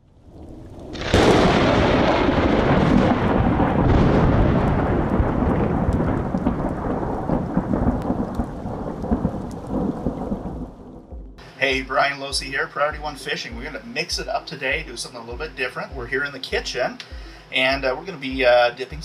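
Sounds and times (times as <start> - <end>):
rain: 0.0 - 15.9
thunder crash: 0.4 - 12.0.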